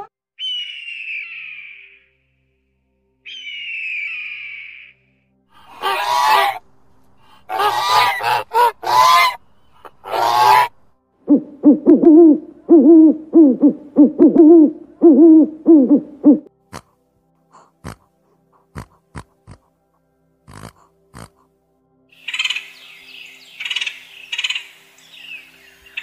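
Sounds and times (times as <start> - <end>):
owl hooting: 0.4 - 2.1, 3.3 - 5.0, 5.6 - 6.6, 7.2 - 16.9, 20.5 - 21.4
geese honking: 5.6 - 10.9.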